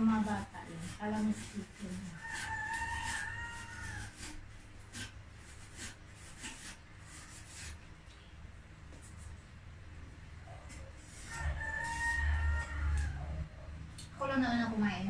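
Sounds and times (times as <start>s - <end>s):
rooster crowing: 2.1s - 4.4s, 11.2s - 13.8s.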